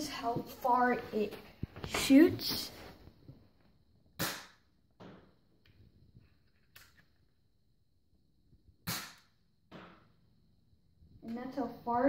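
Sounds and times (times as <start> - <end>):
toy dart gun pop: 4.2 - 5.2, 8.8 - 10.0.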